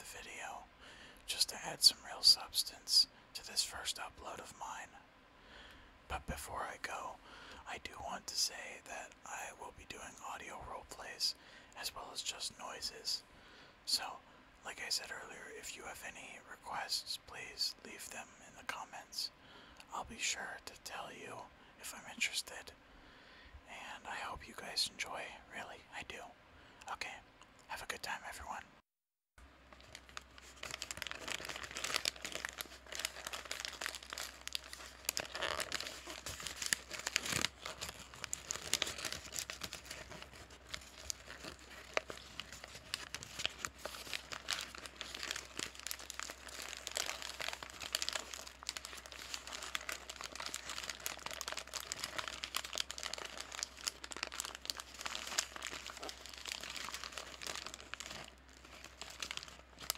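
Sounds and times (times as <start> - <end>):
paper bag crumpling: 29.8 - 59.9.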